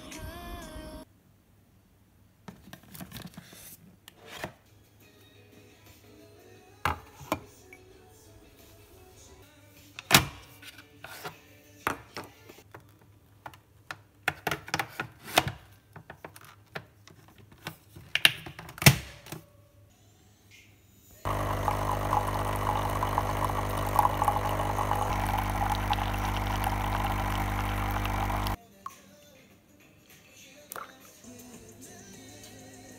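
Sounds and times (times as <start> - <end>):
coffee machine pump buzzing: 21.3 - 28.6.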